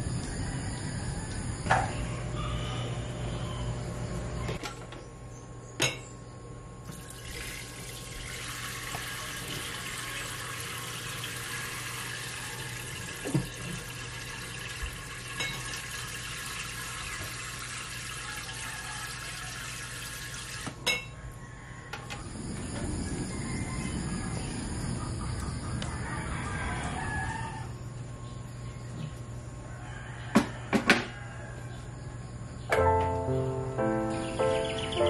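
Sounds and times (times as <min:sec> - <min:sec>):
tap water running into sink: 0:06.9 - 0:20.8.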